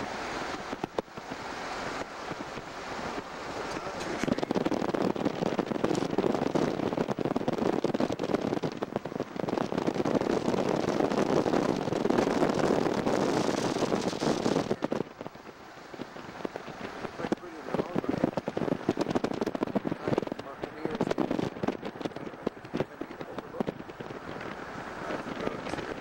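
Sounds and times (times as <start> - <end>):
road noise: 0.0 - 26.0
wind rushing over microphone: 0.0 - 26.0.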